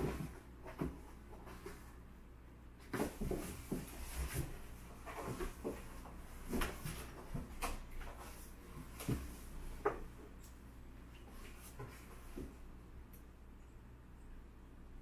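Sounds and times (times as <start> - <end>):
cats scratching cardboard: 2.8 - 10.2.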